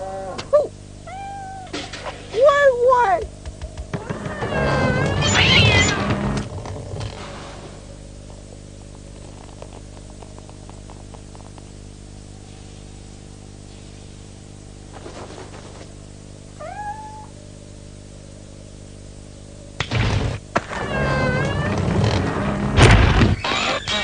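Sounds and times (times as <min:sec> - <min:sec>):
cartoon animal cry: 0:00.0 - 0:01.8, 0:04.1 - 0:06.1, 0:16.6 - 0:17.3
film soundtrack hum and crackle: 0:00.0 - 0:24.0.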